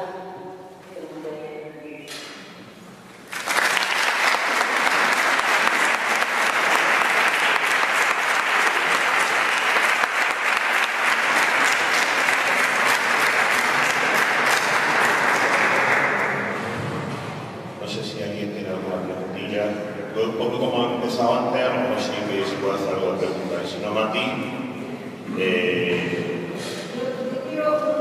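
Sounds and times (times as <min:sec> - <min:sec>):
audience applauding: 0:03.2 - 0:16.8.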